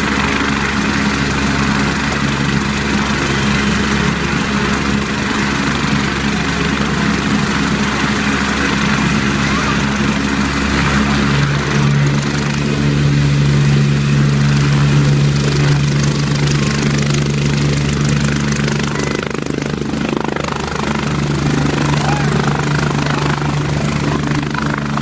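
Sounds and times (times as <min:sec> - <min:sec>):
helicopter rotor drone: 0:00.0 - 0:25.0.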